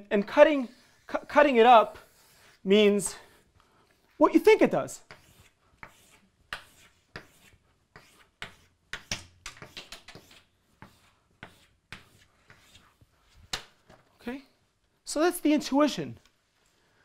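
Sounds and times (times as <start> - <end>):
chalk scraping on chalkboard: 0.2 - 13.5.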